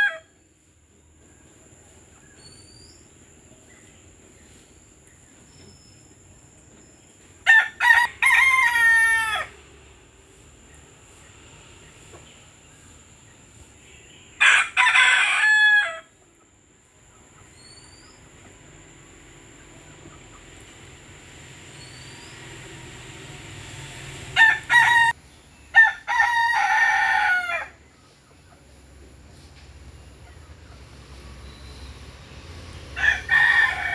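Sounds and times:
rooster crowing: 0.0s - 0.3s, 7.4s - 9.6s, 14.4s - 16.2s, 24.1s - 27.8s, 32.9s - 33.9s.

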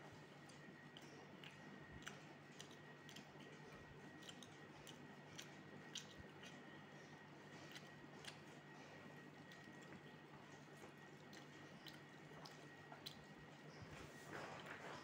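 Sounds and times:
eating rice by hand: 0.0s - 15.0s.

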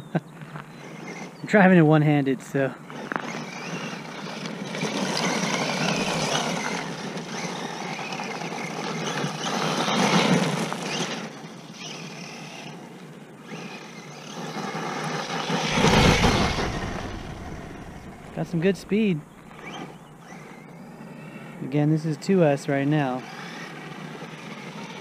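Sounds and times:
toy truck motor whine: 0.0s - 2.0s, 2.7s - 22.0s, 22.8s - 25.0s
tyres crunching on gravel: 0.3s - 12.8s, 13.6s - 20.6s.

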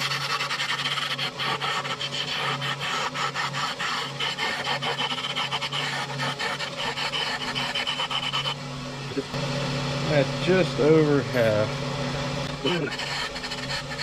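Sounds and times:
gouge scratchy cutting: 0.0s - 8.6s, 12.6s - 14.0s
lathe motor hum: 0.0s - 14.0s.

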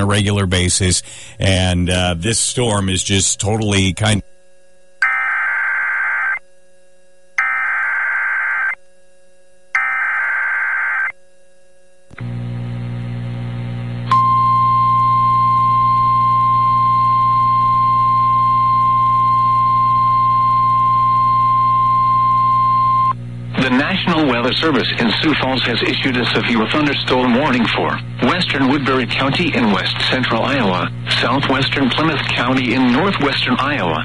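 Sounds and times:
steady alarm tone: 3.1s - 11.8s
data tone bursts: 5.0s - 6.4s, 7.4s - 8.8s, 9.8s - 11.1s
low hum: 11.1s - 34.0s.

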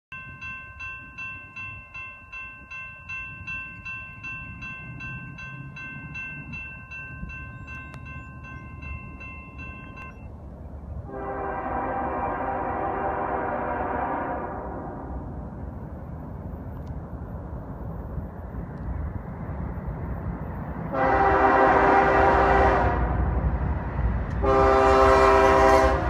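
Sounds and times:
railroad crossing bell ringing: 0.1s - 10.4s, 24.4s - 26.0s
locomotive air horn: 11.1s - 15.2s, 20.9s - 23.2s, 24.4s - 26.0s.

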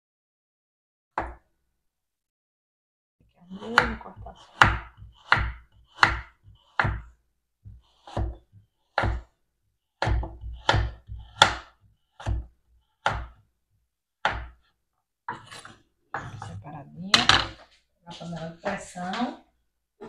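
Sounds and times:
knife knocking on wooden board: 9.0s - 9.2s.

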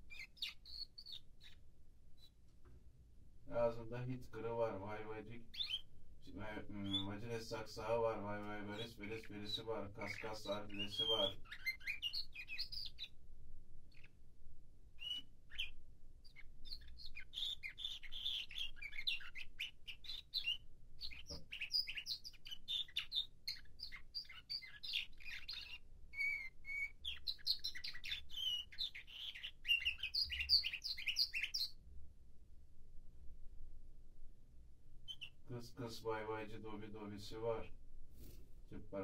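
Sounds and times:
canary singing: 0.0s - 2.4s, 4.4s - 14.3s, 14.9s - 31.8s, 35.0s - 35.5s.

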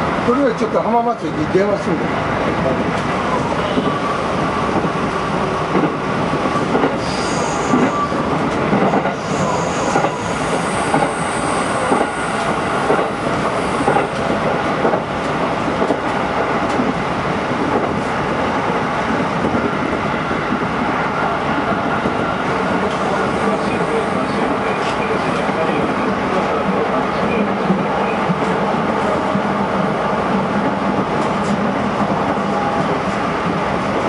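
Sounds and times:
train wheels rumbling on rail: 0.0s - 34.0s
rail-joint clicks: 5.7s - 11.2s, 11.9s - 17.0s, 30.6s - 34.0s
high wheel squeal: 7.0s - 8.2s.

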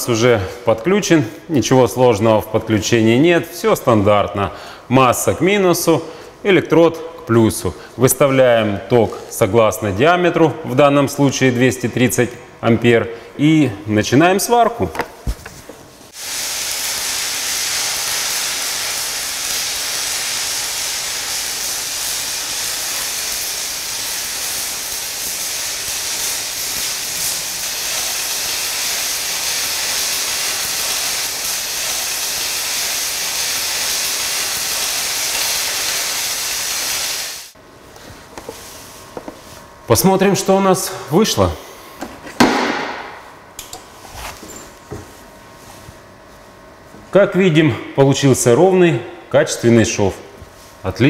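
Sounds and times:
welding arc crackling hiss: 16.0s - 37.6s.

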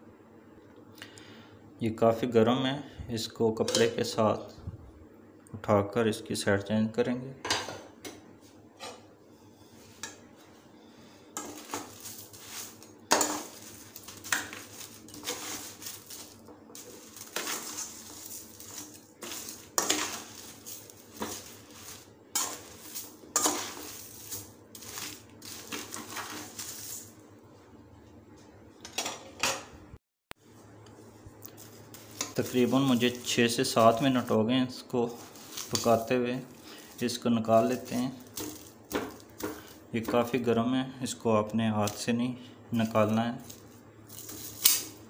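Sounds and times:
metal spatula scraping through salt: 11.4s - 27.2s, 31.6s - 34.3s.

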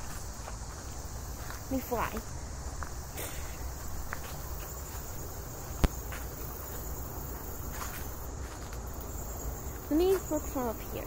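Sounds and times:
insects buzzing: 0.0s - 11.0s.

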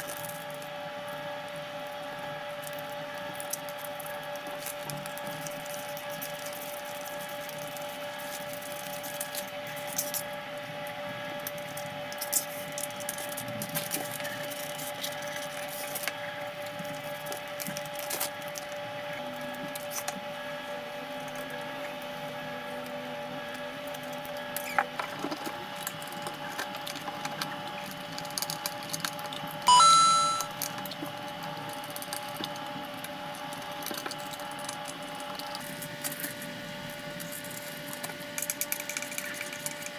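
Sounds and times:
loud high-pitched tone: 29.7s - 30.6s.

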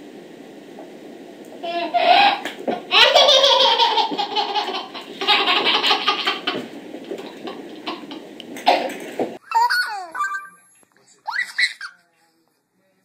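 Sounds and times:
baby laughing: 1.7s - 8.3s, 9.4s - 10.6s, 11.2s - 12.0s.

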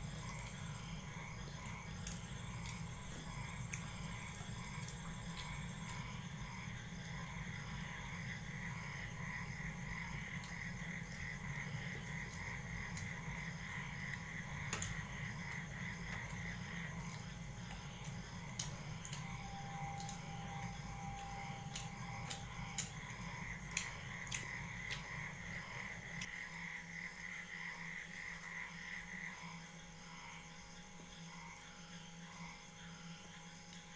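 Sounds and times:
steady low hum: 0.0s - 33.9s
chirring background chorus: 18.4s - 26.3s.

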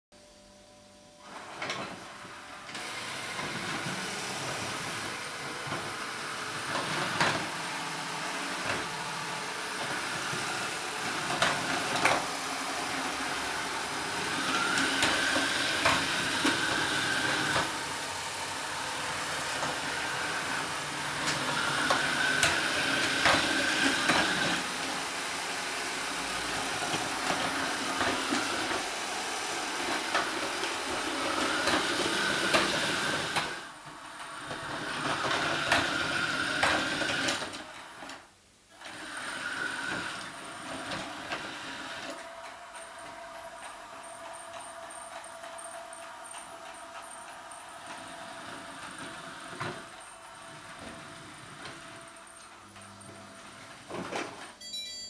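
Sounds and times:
robot vacuum whirring: 1.2s - 33.7s.

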